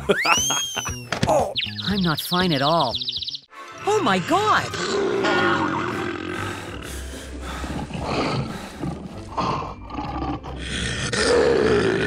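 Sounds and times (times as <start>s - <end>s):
lion roaring: 4.6s - 6.8s, 7.6s - 12.0s.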